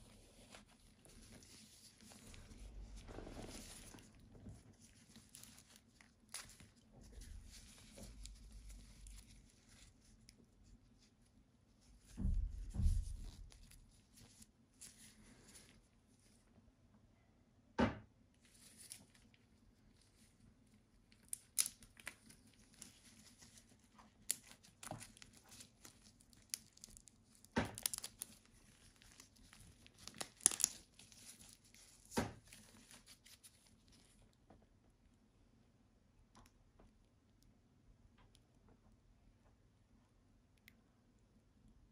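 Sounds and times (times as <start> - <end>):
gloves rustling and crinkling: 0.0 - 16.5, 18.4 - 34.4.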